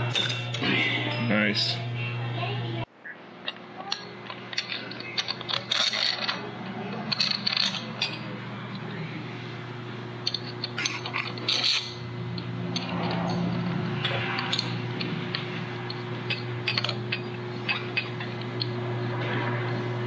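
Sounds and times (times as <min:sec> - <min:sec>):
steady low hum: 0:00.0 - 0:20.0
metal parts clinking: 0:03.5 - 0:08.9, 0:10.2 - 0:13.6, 0:14.3 - 0:18.7.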